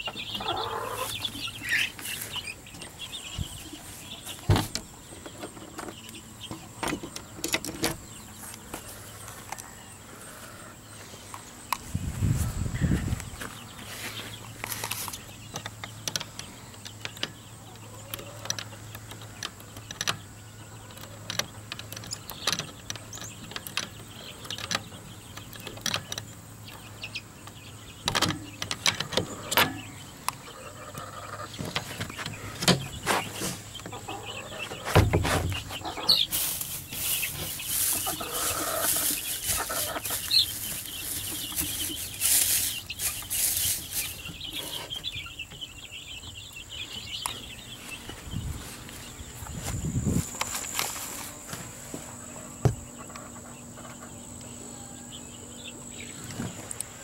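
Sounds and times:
chickens clucking: 0:00.0 - 0:57.0
dry straw rustling: 0:34.8 - 0:45.0, 0:47.8 - 0:52.2.

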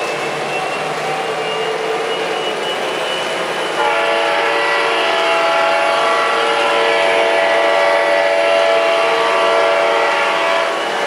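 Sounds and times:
model train running: 0:00.0 - 0:11.0
model train horn chord: 0:03.7 - 0:11.0.

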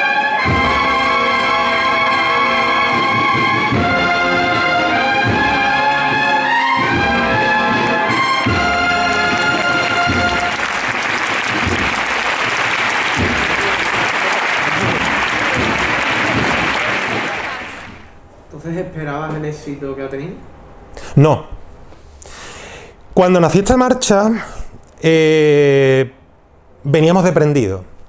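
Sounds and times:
brass band playing a march: 0:00.0 - 0:18.1
crowd applause: 0:00.0 - 0:18.2.

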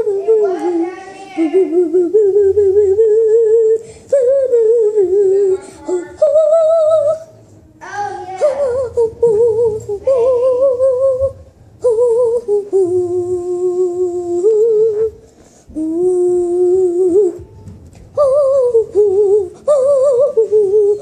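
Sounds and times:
girl humming: 0:08.4 - 0:17.5, 0:18.2 - 0:21.0.

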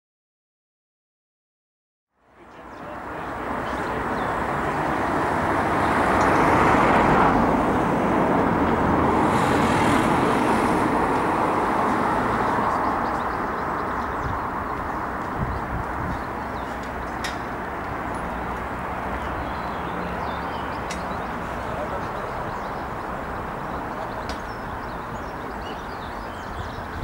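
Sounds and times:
vehicle rumble and hiss: 0:02.2 - 0:25.8.

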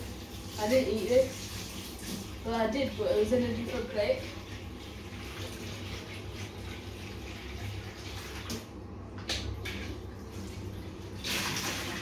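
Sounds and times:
water running from tap into bowl: 0:00.0 - 0:08.7.

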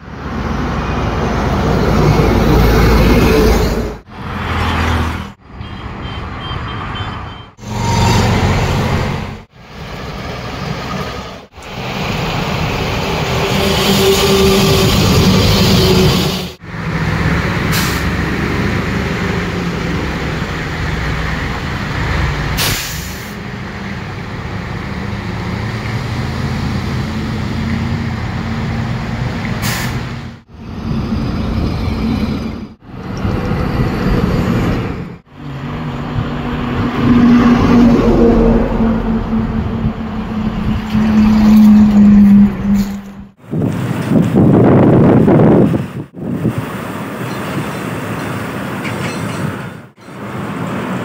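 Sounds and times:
diesel trucks driving past: 0:00.0 - 0:51.0
tyre and road noise: 0:00.0 - 0:51.0.

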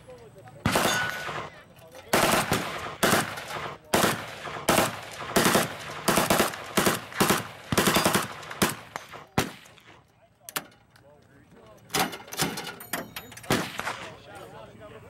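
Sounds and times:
full-auto rifle bursts: 0:00.6 - 0:09.8.

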